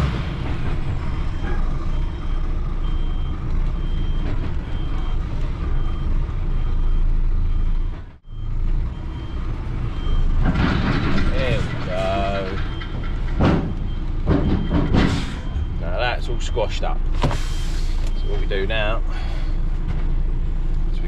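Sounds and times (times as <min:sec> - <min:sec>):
truck engine running: 0:00.0 - 0:21.0
reversing alarm beeping: 0:00.6 - 0:19.6.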